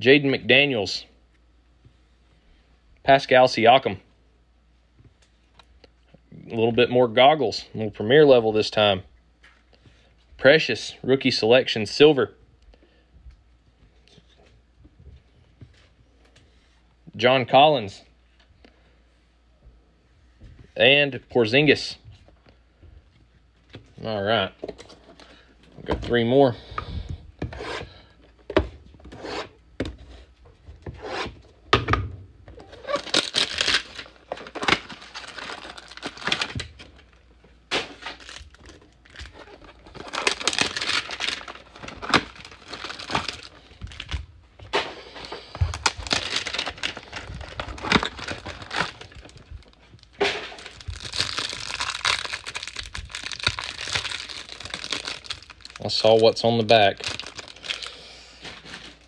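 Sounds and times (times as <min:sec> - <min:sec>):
plastic pack crinkling: 0:32.6 - 0:44.3, 0:45.0 - 0:59.0
cardboard tearing: 0:32.7 - 0:36.7, 0:39.1 - 0:44.0, 0:45.7 - 0:49.2.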